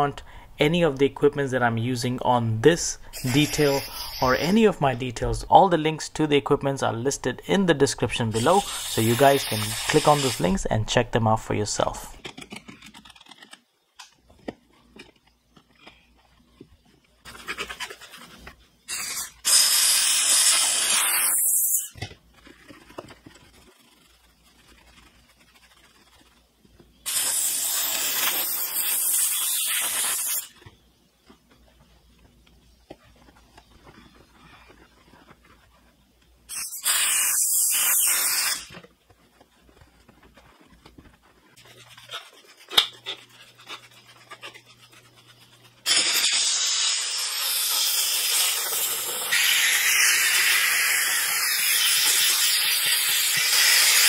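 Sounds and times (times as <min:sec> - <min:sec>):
steam cleaner hissing: 0:03.1 - 0:04.5, 0:08.4 - 0:10.4, 0:18.9 - 0:21.9, 0:27.1 - 0:30.4, 0:36.5 - 0:38.7, 0:45.8 - 0:54.0
brush scrubbing plastic: 0:17.2 - 0:27.5, 0:32.8 - 0:37.0, 0:38.3 - 0:46.6.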